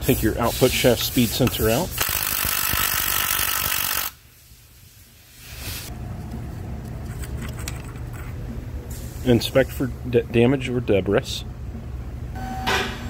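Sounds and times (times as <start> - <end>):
cordless driver running: 2.0 - 4.1.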